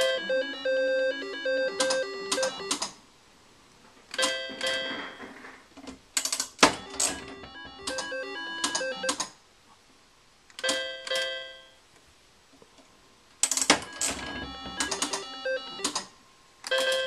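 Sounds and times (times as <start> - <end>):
slot machine electronic tune: 0.0 - 2.8, 6.7 - 9.2, 13.8 - 16.0
slot machine clicks: 0.0 - 2.9, 6.2 - 9.3, 13.5 - 16.1, 16.7 - 17.0
slot machine clunk: 6.6 - 9.2, 13.5 - 16.1.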